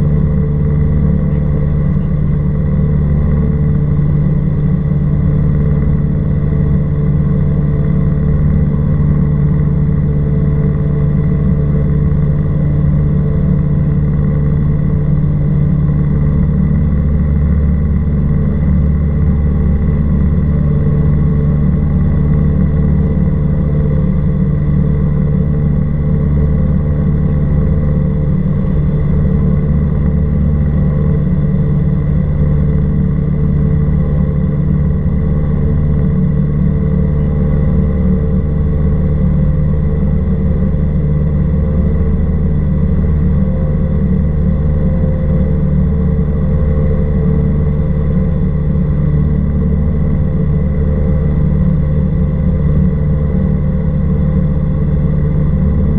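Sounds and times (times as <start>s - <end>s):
light aircraft engine droning: 0.0s - 55.9s.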